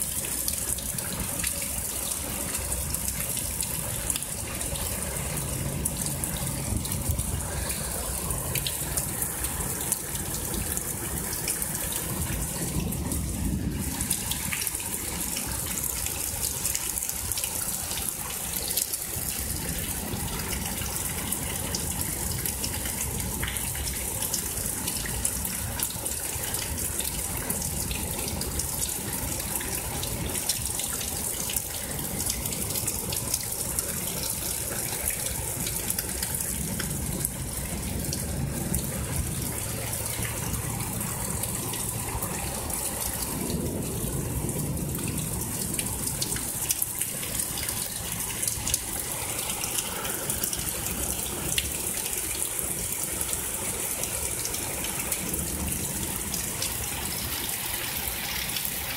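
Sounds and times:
heavy rain hissing: 0.0 - 22.3, 27.2 - 58.9
water running over street: 0.0 - 58.9
raindrops ticking: 13.8 - 57.7.

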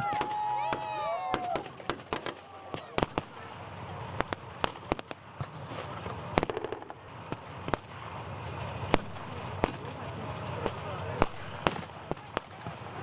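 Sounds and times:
rifle gunshots: 6.4 - 8.1.

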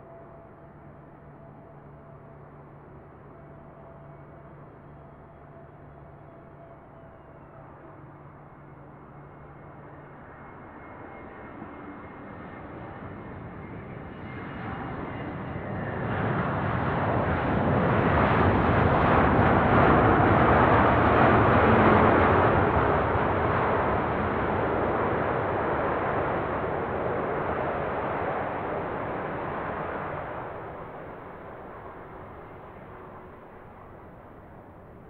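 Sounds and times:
airplane engines roaring: 7.7 - 35.0.

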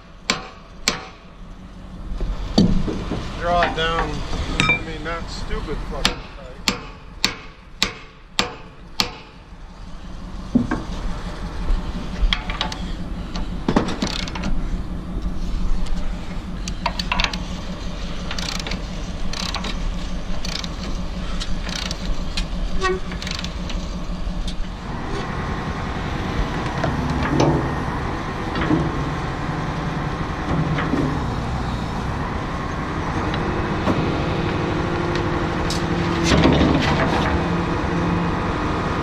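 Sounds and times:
hydraulics working: 0.0 - 39.0
excavator diesel engine running: 8.8 - 39.0
metal clanks and clicks: 12.2 - 14.6, 16.6 - 17.5, 18.2 - 24.6.

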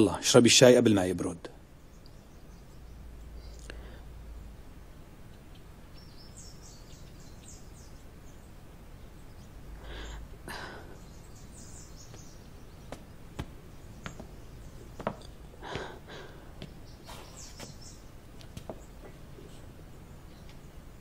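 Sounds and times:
soft rustles: 16.6 - 19.8.

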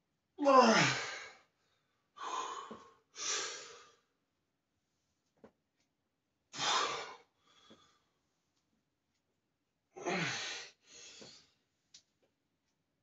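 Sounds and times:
man breathing hard: 2.2 - 4.0, 6.6 - 8.1, 10.0 - 11.4.

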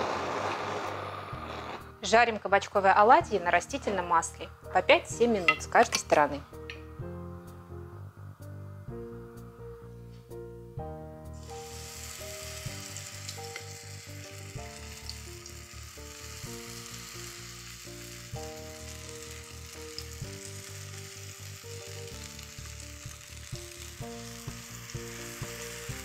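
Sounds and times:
background music: 0.9 - 26.0
batter sizzling in oil: 11.4 - 26.0.

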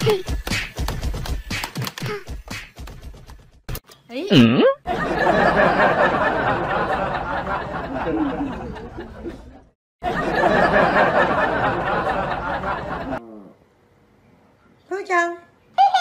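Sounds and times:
group of people laughing: 4.9 - 13.2.

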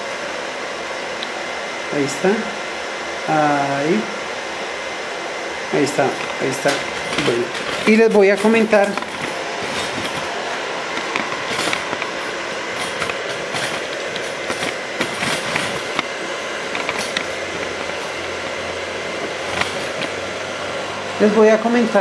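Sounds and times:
welder cooling fan whirring: 0.0 - 22.0
man speaking: 1.9 - 2.6, 3.3 - 4.2, 5.7 - 9.0.

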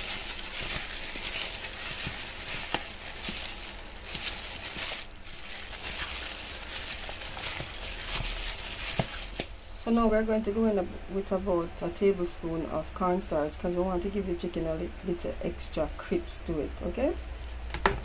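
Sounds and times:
plastic bag crinkling: 0.0 - 9.7.

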